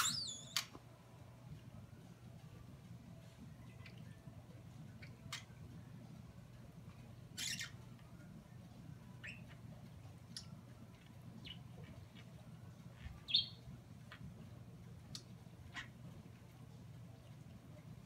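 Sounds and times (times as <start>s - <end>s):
budgerigar chirping and squawking: 0.0s - 0.6s, 7.4s - 7.8s, 9.2s - 9.6s, 13.3s - 13.6s, 15.7s - 16.0s
faint low hum: 0.0s - 18.0s.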